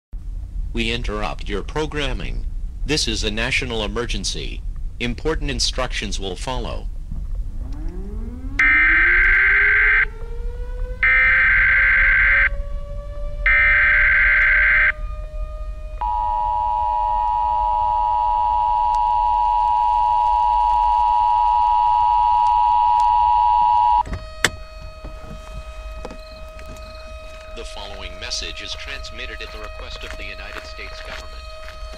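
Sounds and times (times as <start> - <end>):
low rising tone: 7.1 - 31.9
click: 7.7 - 8.0
two-tone attention signal: 13.5 - 14.9, 16.0 - 31.9
digital header bursts: 24.2 - 31.9.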